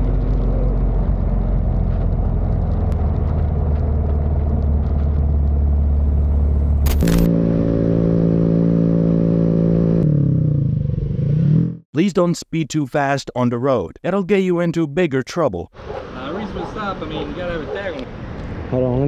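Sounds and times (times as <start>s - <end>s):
wind rumble: 0.0s - 8.0s
motorcycle engine running: 0.0s - 11.8s.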